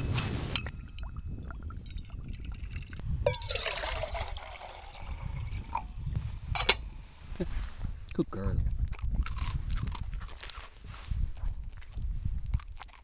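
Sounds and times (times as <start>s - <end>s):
liquid fuel dribbling: 0.8s - 6.2s
water pouring into metal pot: 1.0s - 6.1s.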